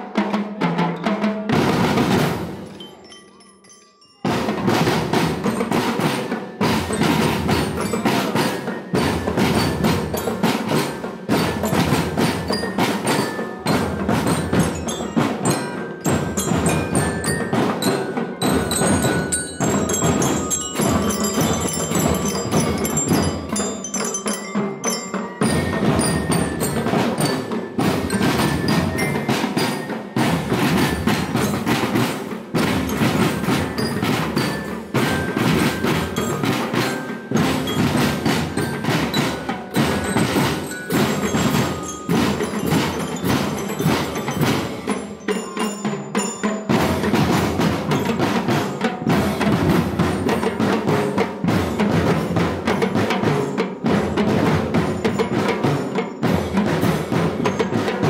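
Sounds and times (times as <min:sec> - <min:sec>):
marching snare drum: 0:00.0 - 0:02.8, 0:04.3 - 0:58.0
marching bells melody: 0:00.1 - 0:58.0.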